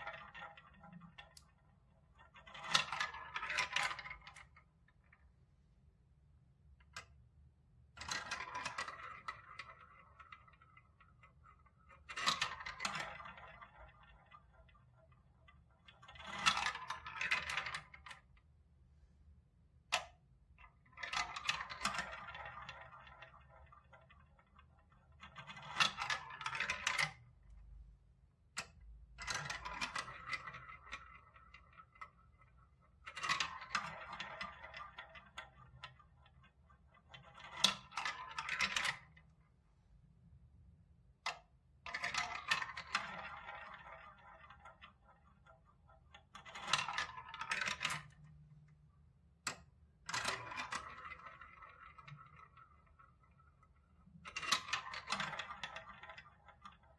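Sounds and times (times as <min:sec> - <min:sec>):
balls clicking into tray: 0:00.0 - 0:05.4, 0:06.8 - 0:18.5, 0:19.8 - 0:27.8, 0:28.4 - 0:39.4, 0:41.2 - 0:56.9
balls rolling through plastic tubes: 0:00.0 - 0:56.9.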